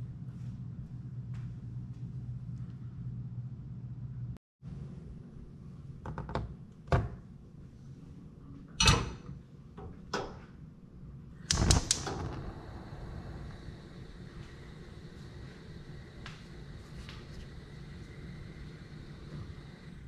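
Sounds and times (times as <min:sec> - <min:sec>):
sharp clicks: 0:11.5 - 0:13.4.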